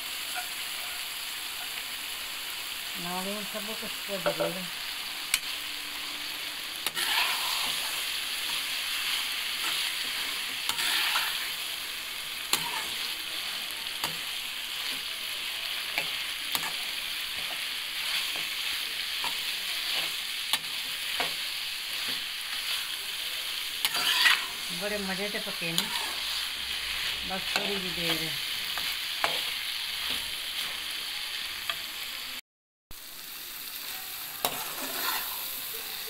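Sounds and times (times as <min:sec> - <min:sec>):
masala sizzling in a pan: 0:00.0 - 0:36.0
metal spatula scraping and clicking: 0:06.8 - 0:11.5, 0:12.5 - 0:15.1, 0:15.9 - 0:18.6, 0:23.8 - 0:24.6, 0:25.7 - 0:26.4, 0:27.5 - 0:30.7.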